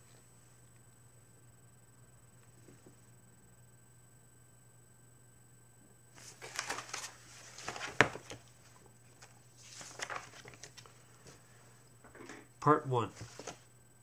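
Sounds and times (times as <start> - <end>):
book pages turning: 6.2 - 11.6, 13.1 - 13.7.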